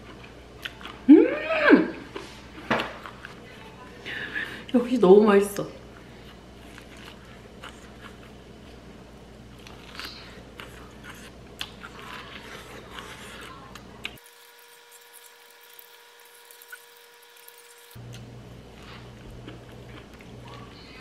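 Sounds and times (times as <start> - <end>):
low room hum: 0.0 - 21.0
person chewing corn on the cob: 6.2 - 8.8, 9.5 - 20.6.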